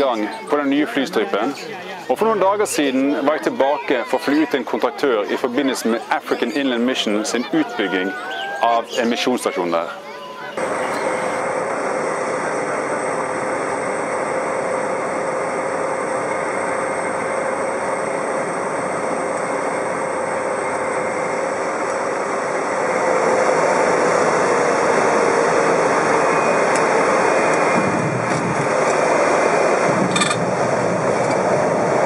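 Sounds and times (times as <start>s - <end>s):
propeller plane engine drone: 10.6s - 32.0s.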